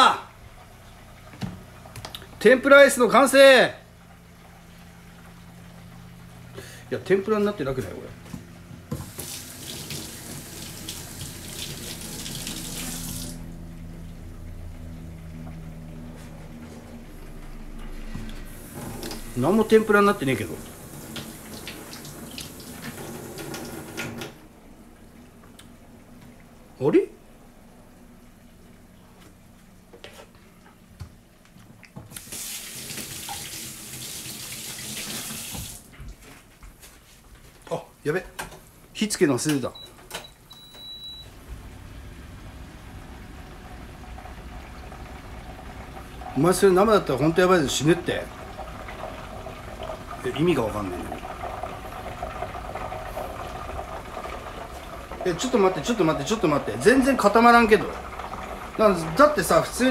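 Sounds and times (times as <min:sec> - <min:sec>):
tap water running into sink: 0:08.9 - 0:13.6, 0:18.5 - 0:24.3, 0:32.1 - 0:35.9, 0:43.5 - 0:59.8.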